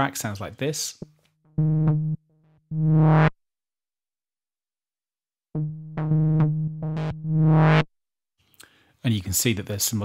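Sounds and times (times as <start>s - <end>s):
synthesizer sequence: 1.6s - 3.3s, 5.6s - 7.9s.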